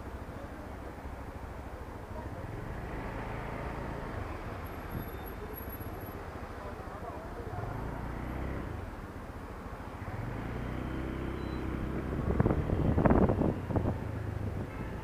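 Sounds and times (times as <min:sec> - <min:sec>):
road and traffic noise: 0:00.0 - 0:15.0.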